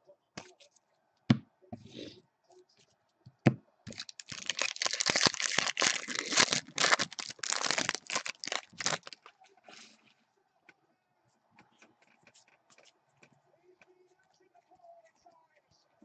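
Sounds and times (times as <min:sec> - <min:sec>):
wrapper tearing and crinkling: 0:03.9 - 0:09.3.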